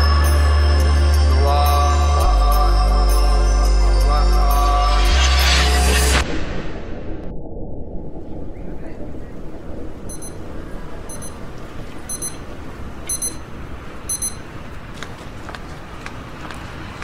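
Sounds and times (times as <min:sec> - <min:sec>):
electronic alarm double beeps: 0:10.1 - 0:10.5, 0:11.1 - 0:11.4, 0:12.1 - 0:12.5, 0:13.1 - 0:13.5, 0:14.1 - 0:14.5.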